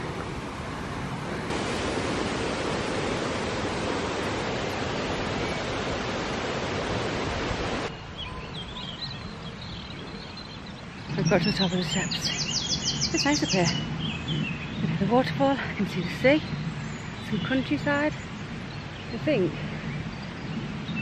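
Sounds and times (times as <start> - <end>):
waterfall rushing: 0.0 - 7.9
bird chirps: 7.9 - 15.1.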